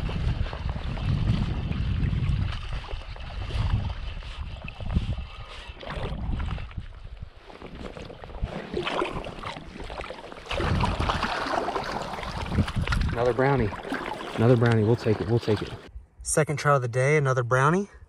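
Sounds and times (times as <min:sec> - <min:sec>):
wind buffeting microphone: 0:00.0 - 0:16.2
fish splashing at surface: 0:07.6 - 0:15.9.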